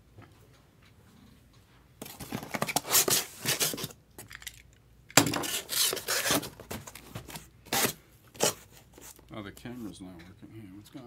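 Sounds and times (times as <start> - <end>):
cardboard scraping and rustling: 2.0 - 3.9, 5.2 - 9.2.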